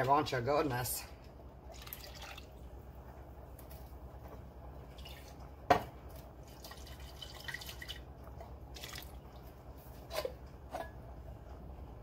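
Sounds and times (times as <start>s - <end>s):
water pouring and dripping: 1.7s - 2.6s, 6.1s - 9.6s.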